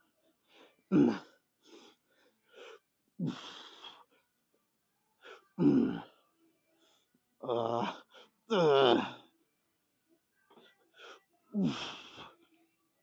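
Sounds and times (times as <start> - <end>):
man breathing hard and grunting: 3.2 - 4.0, 11.6 - 12.3.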